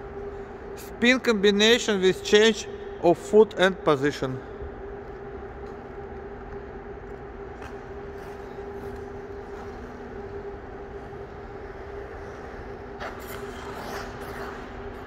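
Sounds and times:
steady machine hum: 0.0 - 15.0
skate blades scraping ice: 11.3 - 15.0.

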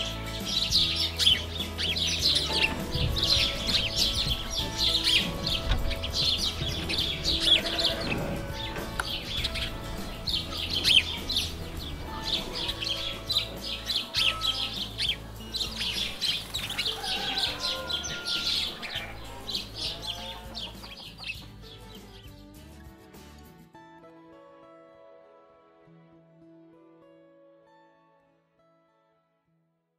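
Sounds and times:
small birds chirping: 0.0 - 22.7
hens clucking: 0.9 - 21.4.

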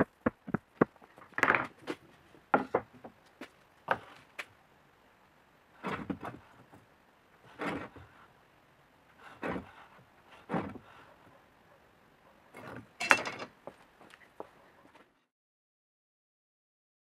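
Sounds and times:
metal parts knocking on wood: 13.0 - 13.6.

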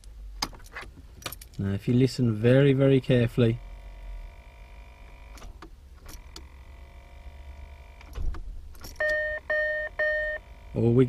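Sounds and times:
starter solenoid clicking: 4.3 - 10.7.

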